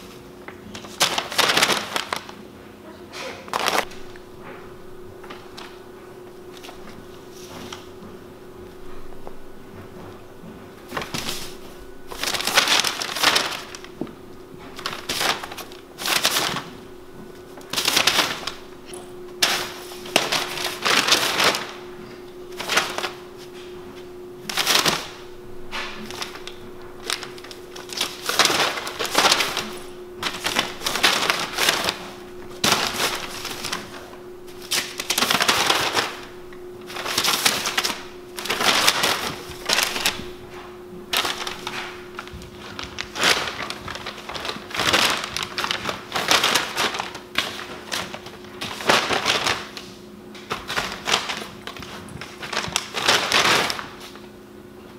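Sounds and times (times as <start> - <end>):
paper crinkling and rustling: 0.0 - 2.5, 3.4 - 54.4
steady low hum: 0.0 - 54.9.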